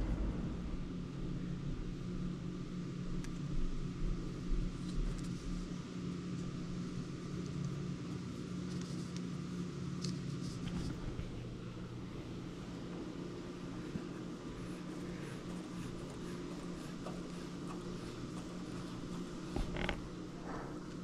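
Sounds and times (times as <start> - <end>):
low hum: 0.0 - 5.8.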